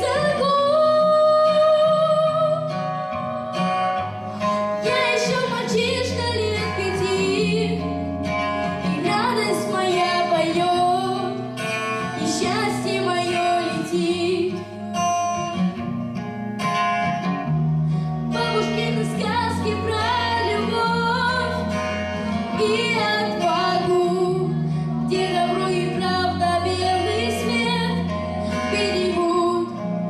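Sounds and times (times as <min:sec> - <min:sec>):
boy singing into a microphone: 0:00.0 - 0:02.7, 0:04.8 - 0:07.8, 0:09.0 - 0:11.4, 0:12.1 - 0:14.6, 0:18.3 - 0:21.6, 0:22.6 - 0:29.8
backing track with guitar: 0:00.0 - 0:30.0.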